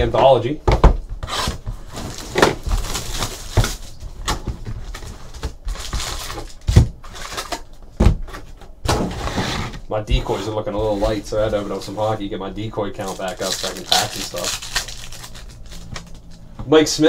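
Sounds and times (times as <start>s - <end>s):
foil packs rustling and crinkling: 1.4s - 7.7s, 9.0s - 16.4s.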